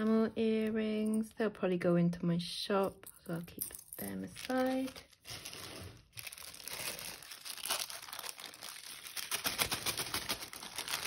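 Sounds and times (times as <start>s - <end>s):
plastic bag crinkling: 4.0s - 11.0s.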